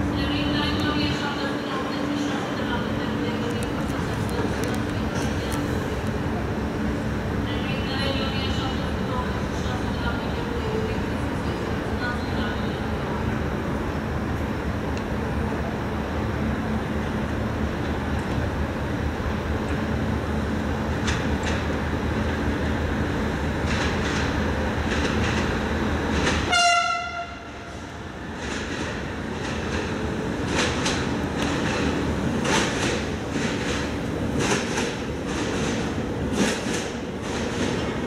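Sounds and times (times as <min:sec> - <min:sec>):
rumble of trains: 0:00.0 - 0:38.0
train horn blast: 0:26.5 - 0:27.7.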